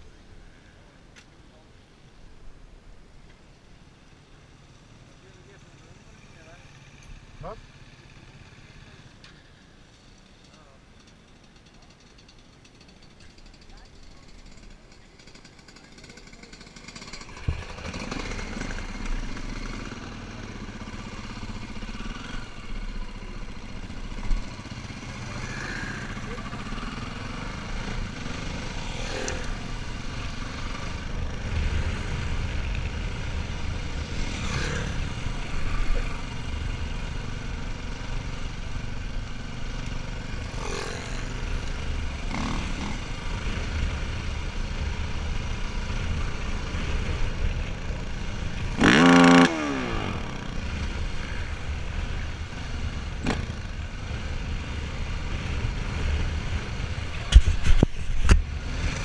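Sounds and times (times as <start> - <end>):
dirt bike engine running: 12.6 - 59.0.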